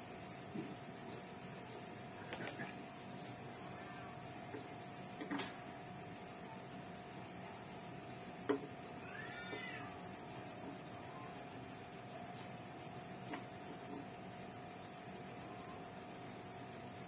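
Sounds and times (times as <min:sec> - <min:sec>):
steady hum: 0:00.0 - 0:17.0
cat meowing: 0:09.0 - 0:10.0.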